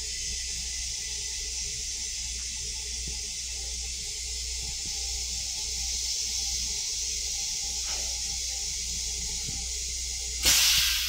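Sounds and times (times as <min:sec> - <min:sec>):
high hiss of moving air: 0:04.7 - 0:11.0.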